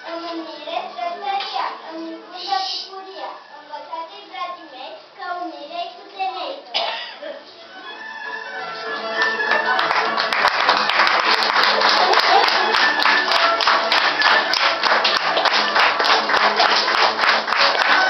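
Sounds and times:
background music: 0.0 - 5.2, 6.9 - 18.0
audience clapping: 8.9 - 18.0.

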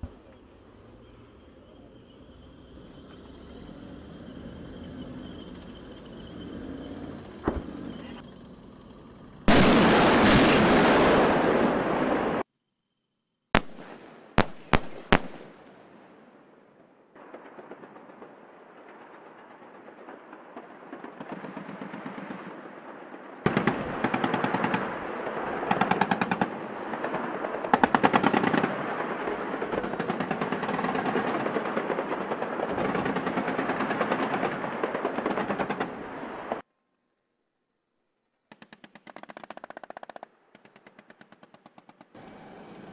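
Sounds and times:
machine-gun fire: 9.5 - 12.0, 23.4 - 26.6, 27.7 - 36.0.

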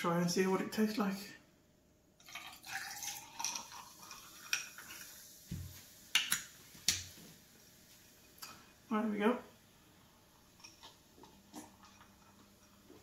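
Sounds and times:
sparkling water pouring: 2.2 - 8.9, 9.5 - 13.0.

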